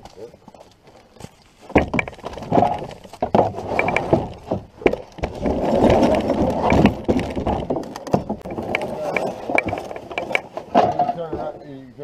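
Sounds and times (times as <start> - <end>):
wooden knocks against canoe hull: 1.7 - 8.8.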